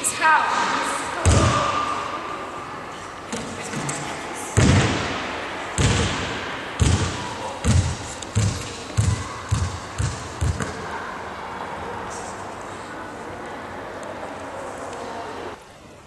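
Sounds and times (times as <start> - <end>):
basketball bouncing on wooden floor: 5.8 - 10.7.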